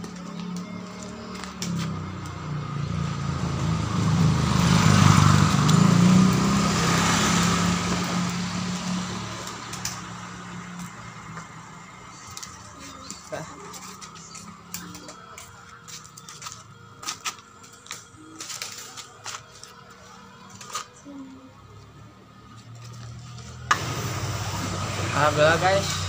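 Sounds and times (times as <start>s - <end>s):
vehicle engine passing: 1.1s - 15.3s, 19.7s - 26.0s.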